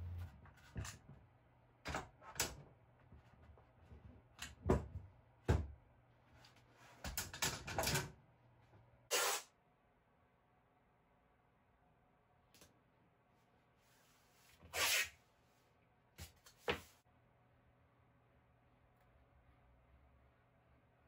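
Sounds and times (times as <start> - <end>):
short scrape: 9.1 - 9.5, 14.5 - 15.2.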